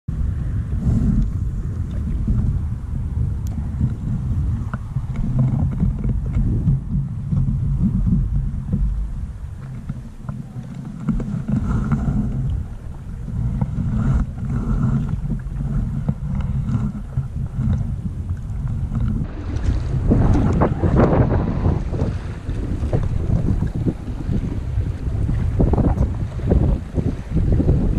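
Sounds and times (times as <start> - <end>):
wind buffeting microphone: 0.1 - 27.9
faint knocks and clicks: 4.6 - 12.6.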